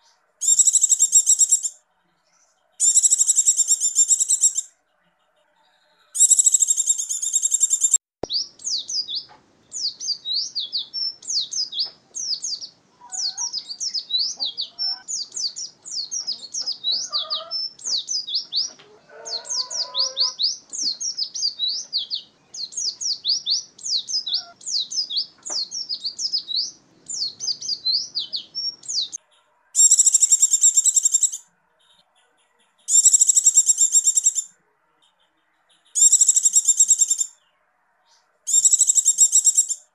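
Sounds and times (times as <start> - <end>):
bird rapid high chirping: 0.4 - 1.8, 2.7 - 4.8, 6.2 - 37.4, 38.5 - 39.9
bird buzzy trill: 2.8 - 4.7, 6.2 - 8.0, 29.8 - 31.4, 32.9 - 34.5, 36.0 - 37.3, 38.5 - 39.8.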